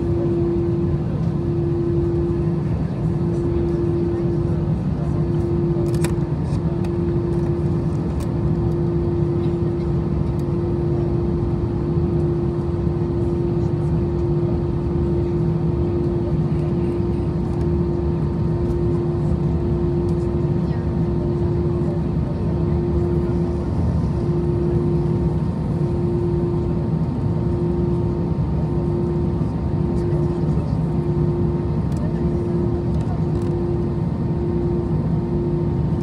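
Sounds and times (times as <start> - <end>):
airplane cabin hum: 0.0 - 36.0.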